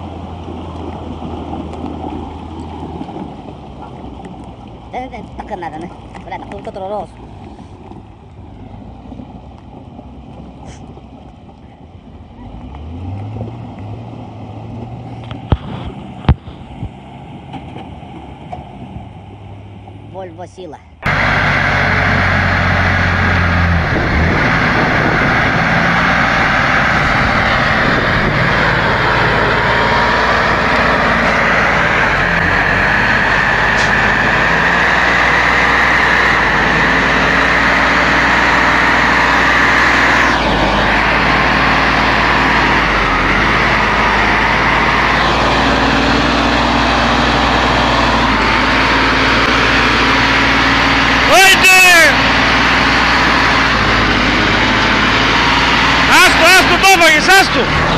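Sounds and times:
lorry engine running under load: 21.0s - 57.9s.

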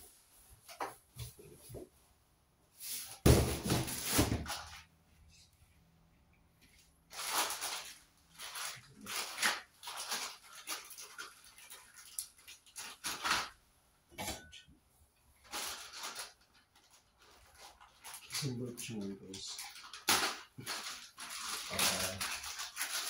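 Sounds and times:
plastic bags rustling: 2.8s - 4.9s, 6.8s - 13.6s, 15.4s - 23.0s
plastic parts clattering: 7.1s - 13.6s, 15.4s - 23.0s.

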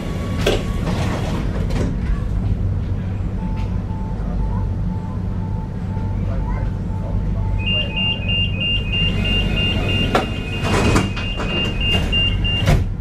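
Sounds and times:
tram humming: 0.0s - 13.0s
tram warning beeper: 3.3s - 12.8s.

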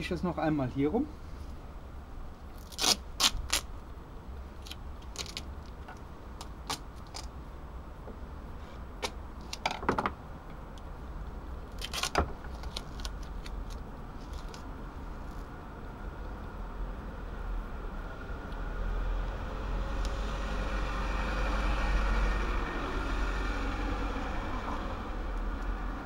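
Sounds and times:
tape crackles: 2.4s - 3.9s, 4.5s - 7.4s, 11.7s - 15.5s
duct tape ripping: 2.5s - 3.8s, 4.6s - 5.8s, 6.4s - 7.4s, 11.7s - 14.7s.

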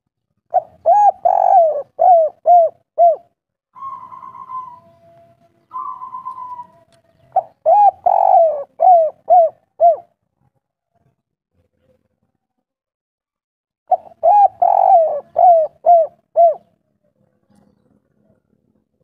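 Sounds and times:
dove cooing: 0.5s - 10.2s, 13.9s - 16.7s.

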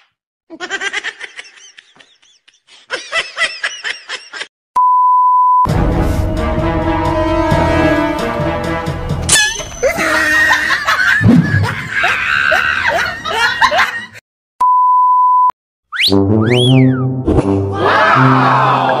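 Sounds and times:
music: 5.7s - 10.1s, 16.0s - 19.0s
rising and falling whistle tone: 15.9s - 17.2s.

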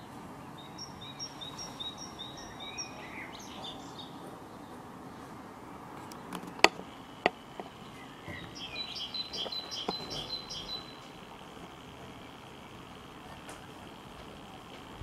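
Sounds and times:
small bird chirping: 0.0s - 4.9s, 5.6s - 15.0s
sharp clicks: 5.9s - 15.0s.

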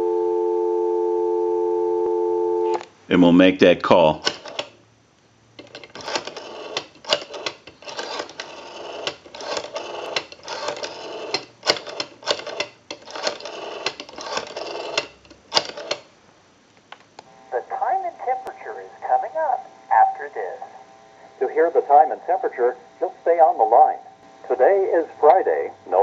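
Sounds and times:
rotary telephone dial whirring and clicking: 4.2s - 4.8s, 5.6s - 16.1s.

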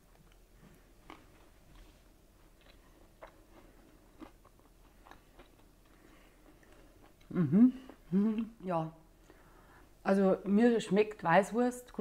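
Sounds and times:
chewing crispy food: 0.0s - 8.6s.

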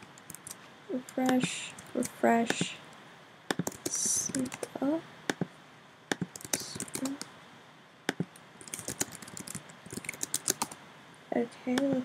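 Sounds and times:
keyboard typing: 0.0s - 2.7s, 3.5s - 5.5s, 6.1s - 7.3s, 8.1s - 10.8s.

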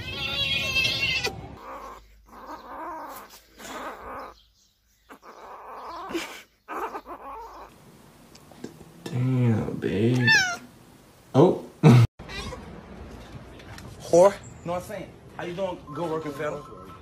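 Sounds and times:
kitten crying: 0.0s - 4.4s, 5.1s - 7.7s, 10.2s - 10.7s.

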